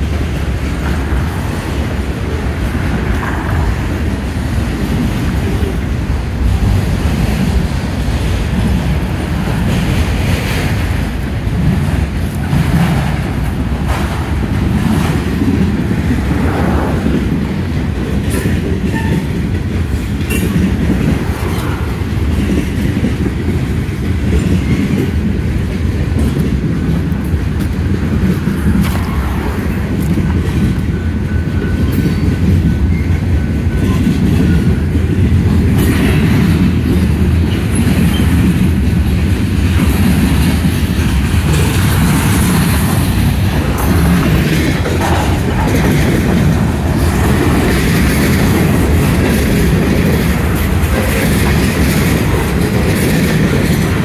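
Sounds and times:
steel wheels rumbling on rail: 0.0 - 54.0
train cars clanking: 0.0 - 54.0.

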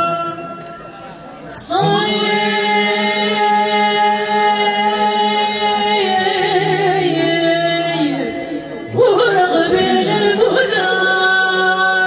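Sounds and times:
singers chanting a long note: 1.6 - 12.0.

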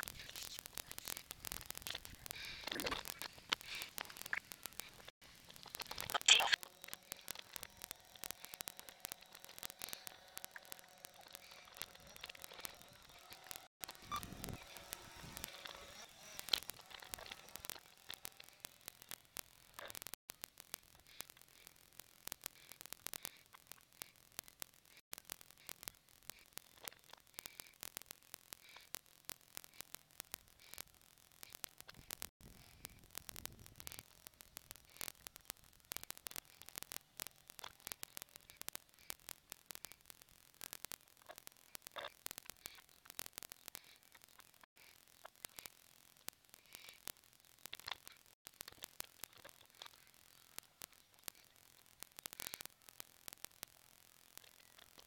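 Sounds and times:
sharp clicks and crackles: 0.0 - 55.0.

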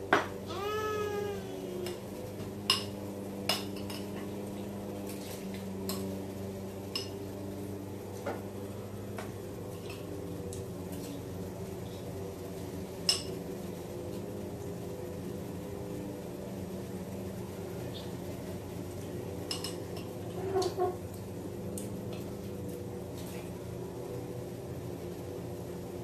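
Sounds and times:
toddler vocalizing: 0.5 - 2.1.

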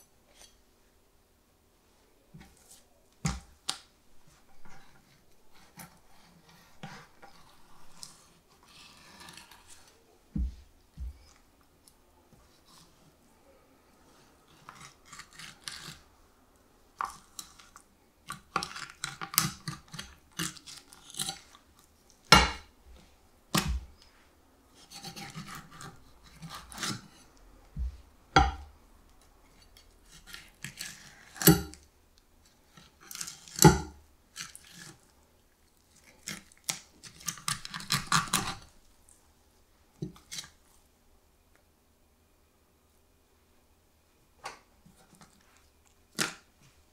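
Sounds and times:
knife scraping fish bones: 5.6 - 9.8, 14.5 - 16.0, 18.3 - 21.6, 24.8 - 27.3, 29.6 - 31.8, 32.8 - 35.0, 36.0 - 38.7.

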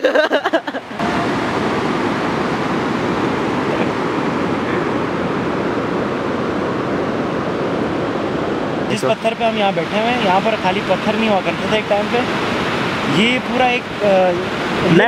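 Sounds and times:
people laughing: 0.0 - 1.0
river rushing over stones: 0.9 - 15.0.

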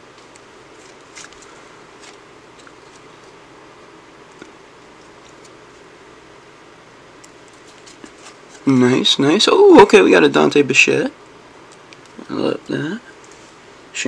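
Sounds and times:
cards clicking and rustling: 0.1 - 3.4, 4.3 - 5.6, 7.3 - 8.6.

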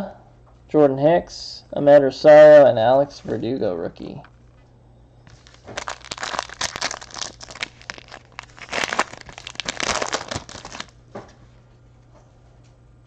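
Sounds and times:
foil wrapper crinkling: 5.3 - 11.0.

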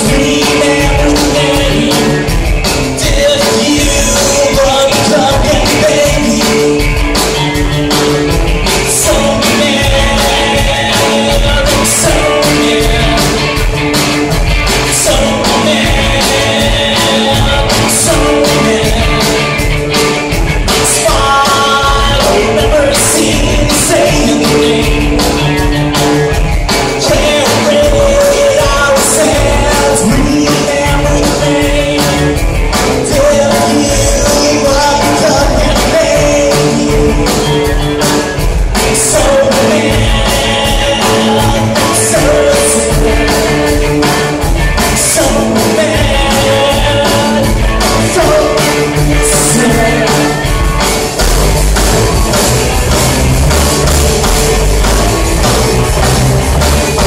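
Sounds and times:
person singing: 0.0 - 51.3
drum kit pounding: 0.0 - 57.0
electric guitars: 0.0 - 57.0.

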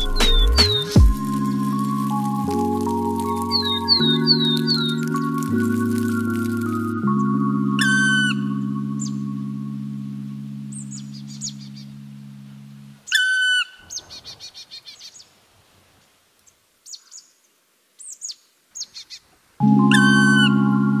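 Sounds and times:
bird calls and chirps: 0.0 - 9.3, 10.7 - 12.0, 13.1 - 15.4, 16.4 - 20.6
background music: 0.0 - 13.0, 19.6 - 21.0.

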